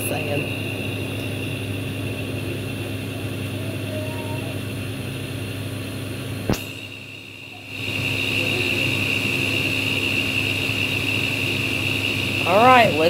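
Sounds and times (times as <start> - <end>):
mechanical hum with high whine: 0.0 - 13.0
sharp click: 6.5 - 6.8.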